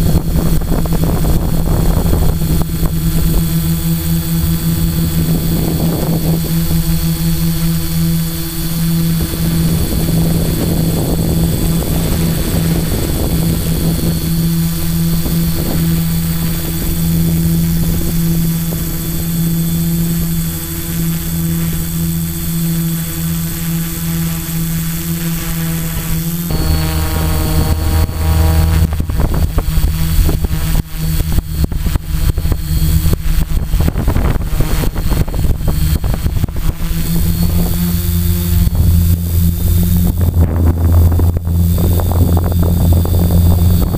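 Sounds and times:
drone motors droning hum: 0.0s - 43.9s
choppy noise: 26.4s - 43.9s.

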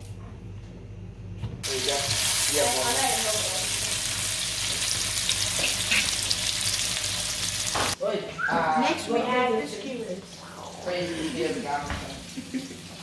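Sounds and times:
food sizzling in hot oil: 1.6s - 8.0s, 9.6s - 13.0s.

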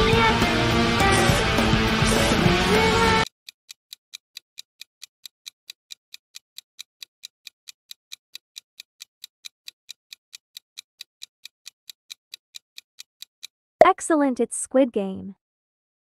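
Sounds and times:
fast clock ticks: 3.2s - 14.0s.

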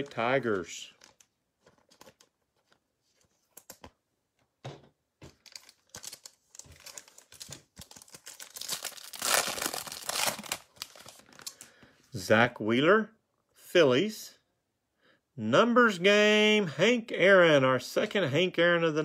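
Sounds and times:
foil wrapper tearing and crinkling: 5.4s - 11.6s.

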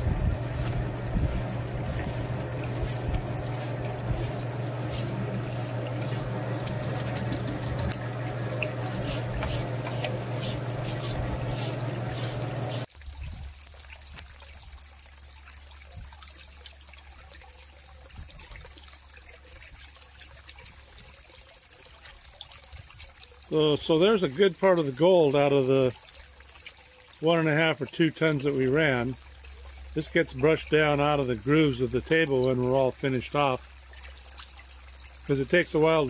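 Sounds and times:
steady machine hum: 0.0s - 12.9s
water trickling: 0.0s - 36.0s.

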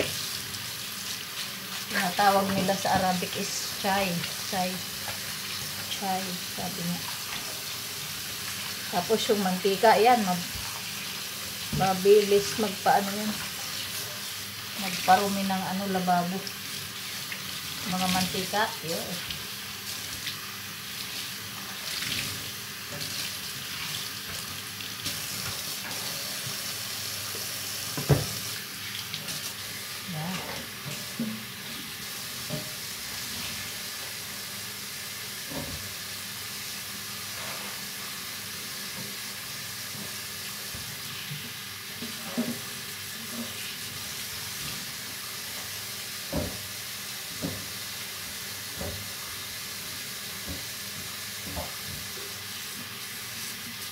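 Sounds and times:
cloth rinsed and squeezed: 0.0s - 32.4s
tap running into metal sink: 27.9s - 28.4s, 46.3s - 46.7s
knocks on metal sink: 28.0s - 28.4s.

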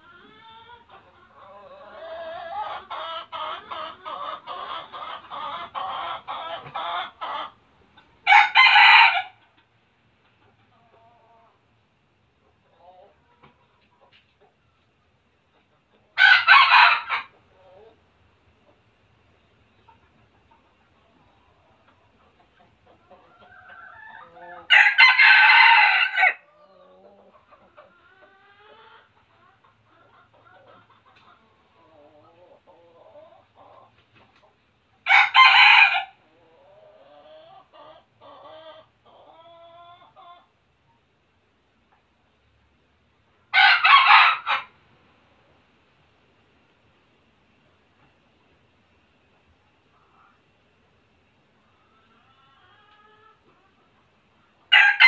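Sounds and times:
junglefowl clucking: 0.0s - 11.6s, 19.8s - 40.5s
junglefowl crowing: 8.2s - 9.4s, 16.2s - 17.3s, 23.3s - 26.5s, 35.0s - 40.4s, 43.5s - 44.8s, 54.7s - 55.0s
soft rooster calls: 54.7s - 55.0s.

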